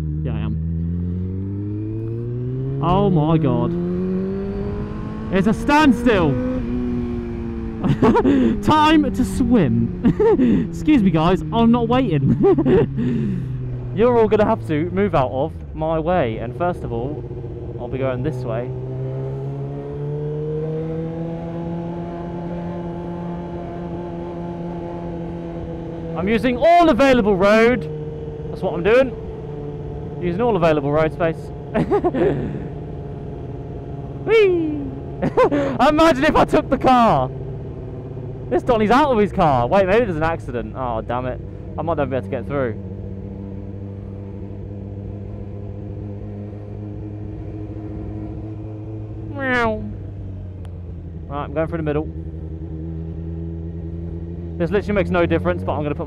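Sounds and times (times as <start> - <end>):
motorcycle engine running: 0.0 - 56.0
motorcycle engine idling: 46.0 - 55.0.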